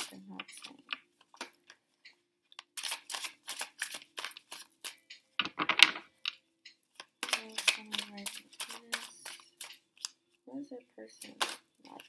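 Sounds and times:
cards being shuffled: 2.6 - 6.0, 7.0 - 10.2.

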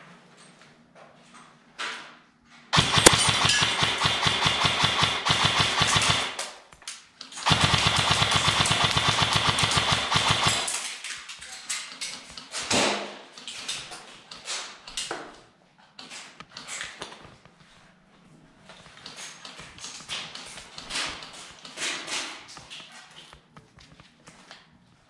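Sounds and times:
airsoft rifle firing full auto: 2.8 - 6.6, 7.4 - 11.0.

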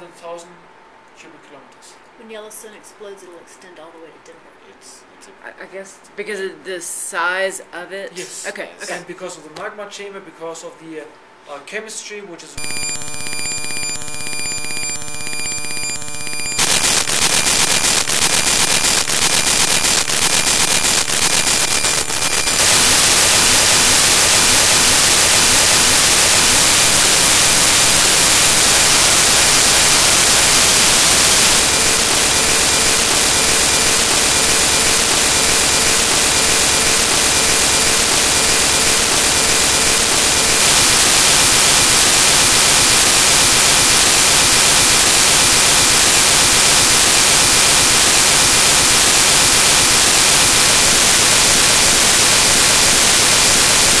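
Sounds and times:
faint steady tone: 12.6 - 23.9
loud static hiss: 12.6 - 54.0.

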